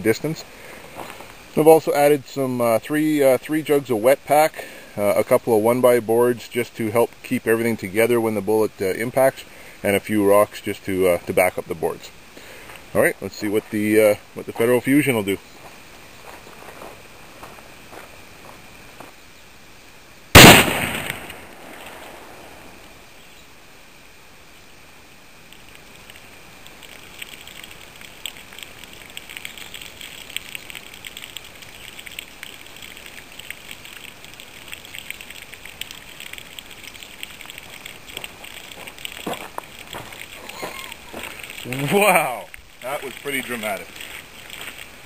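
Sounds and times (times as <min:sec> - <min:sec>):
rifle shot: 0:20.4 - 0:22.4.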